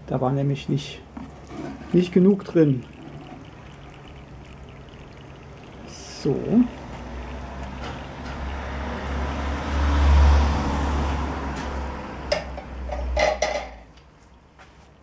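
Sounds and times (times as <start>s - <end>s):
vehicle passing: 2.8s - 14.8s
light clinks and knocks: 12.3s - 13.9s.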